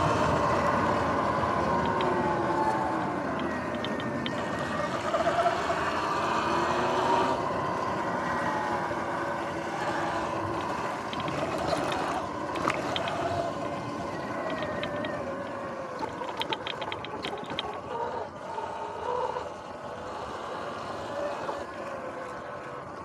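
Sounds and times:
electric motor and chain whining: 0.0 - 23.0
clicks and rattles: 1.6 - 4.7, 10.6 - 17.9.

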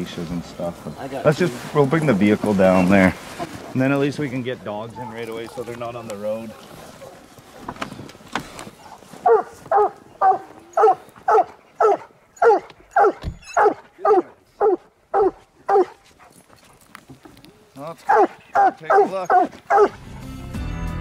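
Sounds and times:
hound barking: 9.2 - 16.3, 18.0 - 20.2.

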